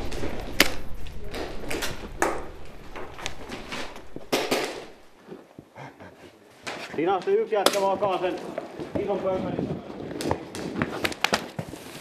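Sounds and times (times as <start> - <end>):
airsoft gunshots: 0.0 - 5.2
pellets striking: 0.0 - 5.2.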